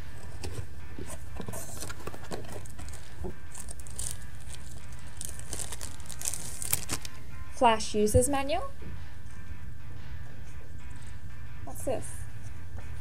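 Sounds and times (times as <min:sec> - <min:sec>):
cardboard packaging rustling: 0:00.2 - 0:07.2.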